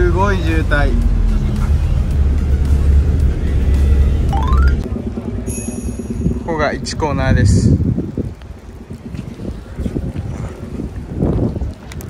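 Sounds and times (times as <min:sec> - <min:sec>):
background music with strong bass: 0:00.0 - 0:04.8
rising sound effect: 0:04.3 - 0:04.9.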